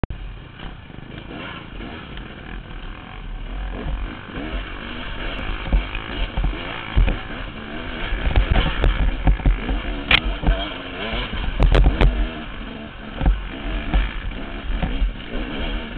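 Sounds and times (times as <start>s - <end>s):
dirt bike engine running: 0.1s - 15.9s
heavy low thumps of bike jolting: 3.6s - 15.9s.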